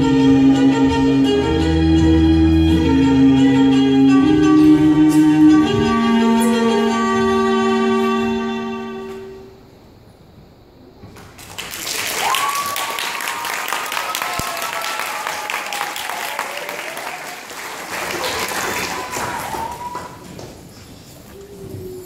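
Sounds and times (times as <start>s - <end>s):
audience applauding: 11.3s - 20.5s
high cheer: 11.6s - 20.3s.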